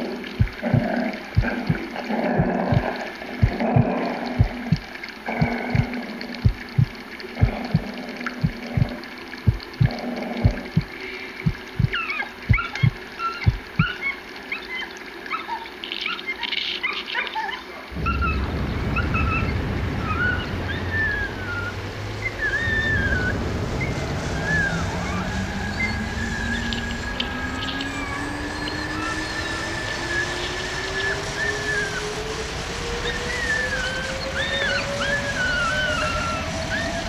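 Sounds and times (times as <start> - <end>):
slow rising low tone: 0.2 - 13.9, 17.9 - 37.0
low rumble: 0.4 - 13.9, 17.9 - 37.0
low heartbeat-like thumps: 0.4 - 14.0
birds chirping: 10.7 - 29.6.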